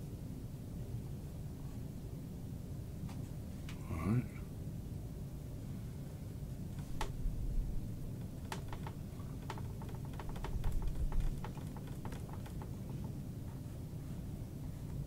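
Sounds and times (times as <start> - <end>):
light clicks and taps: 8.1 - 13.2.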